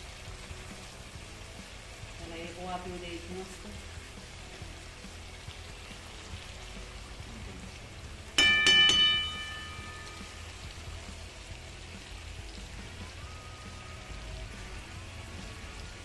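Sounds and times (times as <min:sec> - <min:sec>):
gravy simmering and bubbling: 0:03.3 - 0:16.0
metal spatula rapping on pan: 0:08.4 - 0:10.4.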